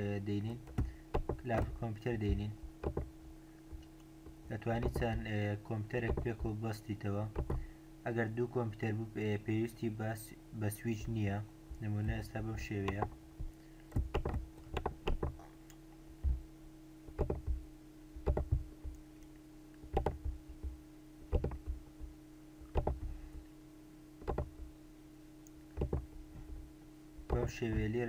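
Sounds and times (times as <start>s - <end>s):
faint electrical hum: 0.0s - 28.0s
computer mouse clicks: 21.3s - 21.6s.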